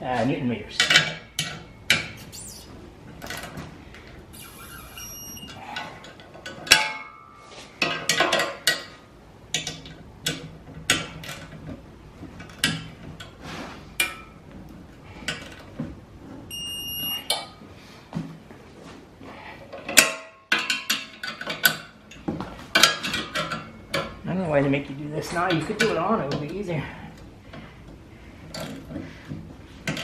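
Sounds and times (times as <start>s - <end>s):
short electronic beep: 4.4s - 5.6s, 16.5s - 17.3s.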